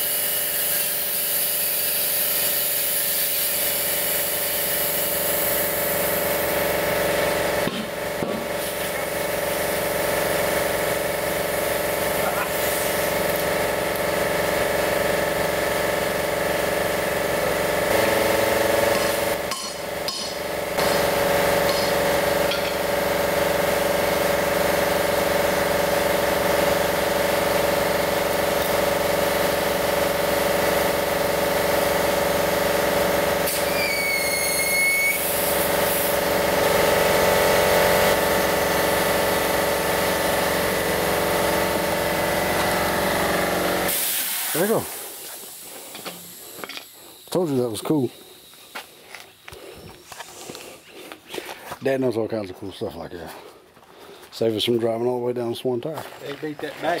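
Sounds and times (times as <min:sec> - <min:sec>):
compressed air filling tyre: 0:00.0 - 0:51.7
machine hum: 0:03.8 - 0:33.5, 0:35.2 - 0:51.5
short high whistle: 0:33.5 - 0:35.4.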